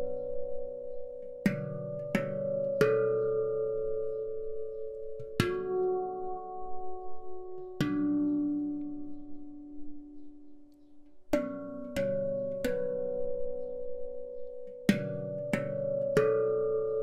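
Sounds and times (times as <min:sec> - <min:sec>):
handpan notes ringing: 0:00.0 - 0:17.0.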